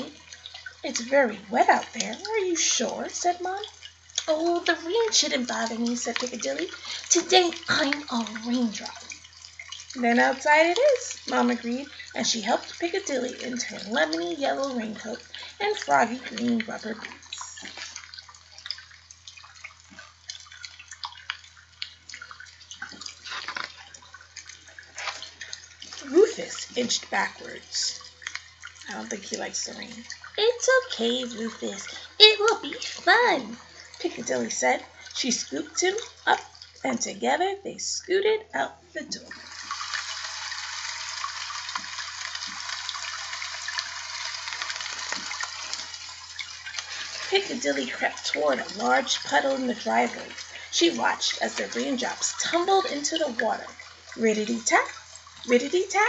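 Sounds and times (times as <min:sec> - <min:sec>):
rushing water: 0:00.0 - 0:37.4, 0:39.0 - 0:56.0
book crackling and rustling: 0:23.1 - 0:23.9.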